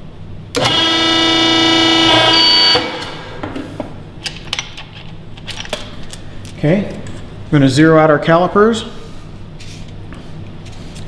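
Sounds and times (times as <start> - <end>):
buzzer steady tone: 0.6 - 3.0.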